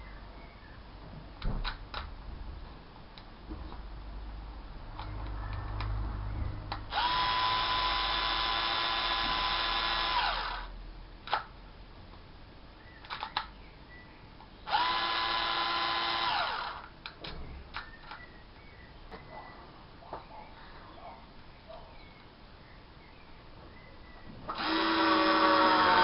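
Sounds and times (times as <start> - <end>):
cordless drill motor whining: 6.9 - 10.7, 14.7 - 16.9, 24.5 - 26.0
sharp mechanical clicks: 11.2 - 11.5.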